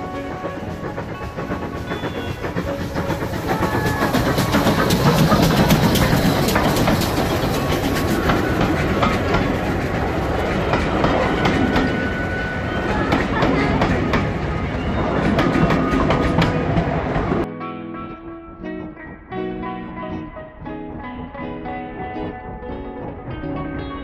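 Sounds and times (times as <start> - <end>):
steam locomotive passing: 0.0 - 17.5
wheels clicking over rail joints: 0.0 - 17.5.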